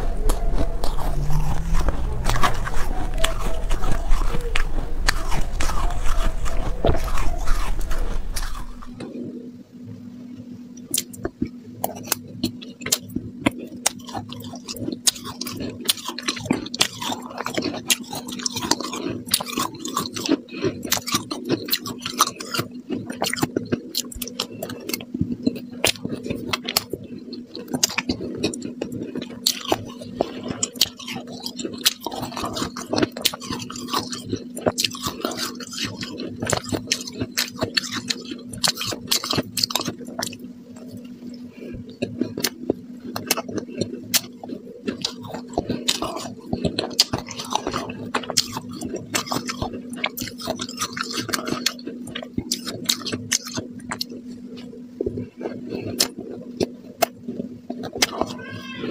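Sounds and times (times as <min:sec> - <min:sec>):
shaved ice being chewed: 0:00.0 - 0:09.5, 0:10.8 - 0:58.9
steady low hum: 0:00.0 - 0:58.9.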